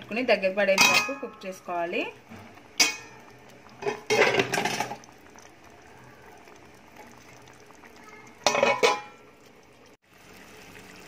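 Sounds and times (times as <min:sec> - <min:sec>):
curry bubbling: 0:00.0 - 0:11.0.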